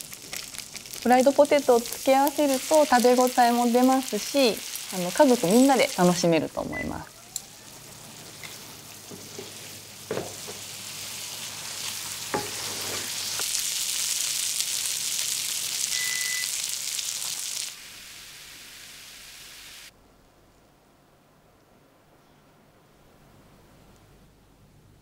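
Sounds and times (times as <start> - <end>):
chicken sizzling in a frying pan: 0.0 - 6.5, 7.1 - 19.9.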